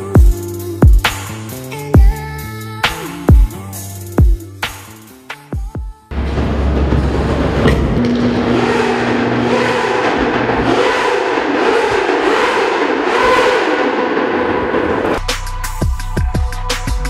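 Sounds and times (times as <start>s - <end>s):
crowd cheering: 6.1s - 15.2s.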